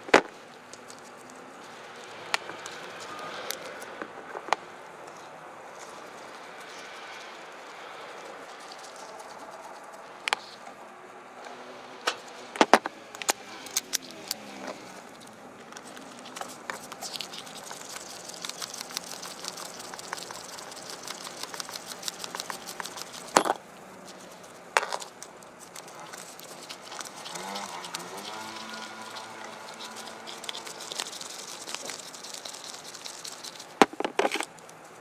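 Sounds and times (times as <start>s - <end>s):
fine scraping ticks: 13.2s - 35.0s.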